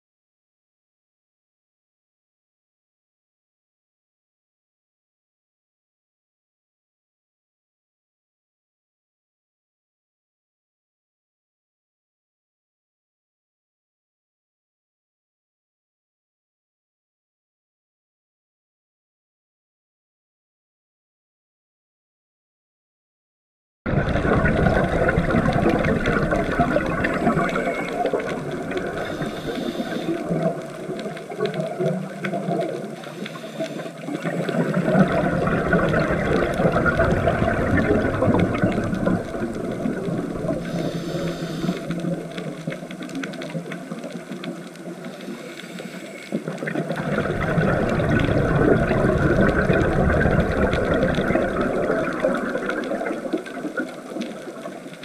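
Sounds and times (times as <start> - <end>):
underwater air bubbling: 23.9 - 55.0.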